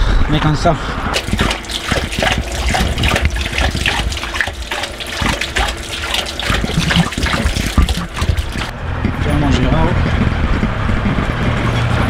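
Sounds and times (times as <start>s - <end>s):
tap water running onto stone: 1.1s - 8.7s.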